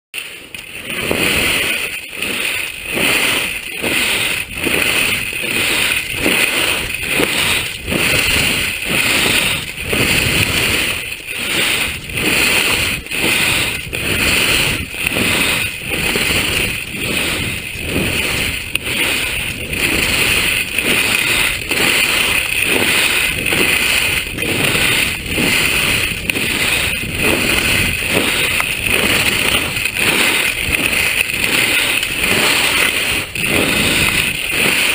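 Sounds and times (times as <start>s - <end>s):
skis scraping over snow: 0.2s - 34.9s
wind on microphone: 0.4s - 34.9s.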